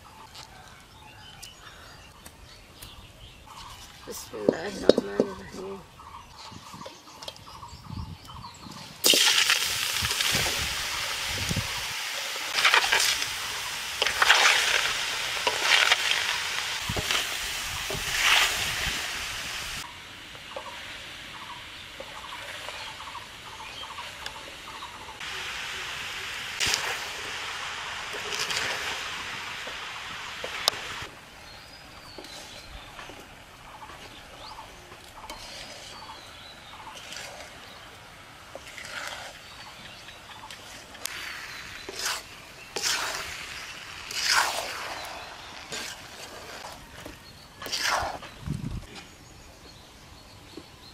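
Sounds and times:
strawberries hissing in hot pan: 0:09.0 - 0:33.8, 0:41.0 - 0:46.8, 0:47.6 - 0:48.3
metal ladle scraping pan: 0:35.2 - 0:36.0, 0:41.5 - 0:43.4, 0:44.0 - 0:46.8, 0:47.6 - 0:48.3.

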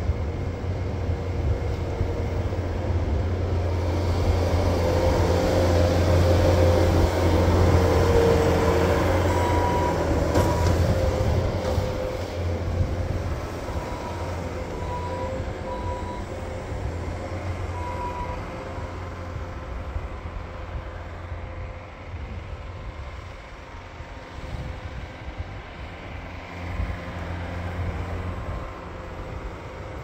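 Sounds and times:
skid-steer loader engine: 0:00.0 - 0:30.0.

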